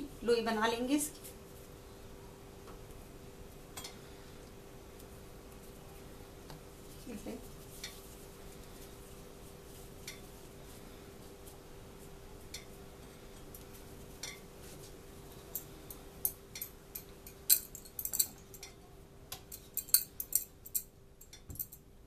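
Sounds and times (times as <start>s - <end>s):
faint hum: 0.0s - 22.0s.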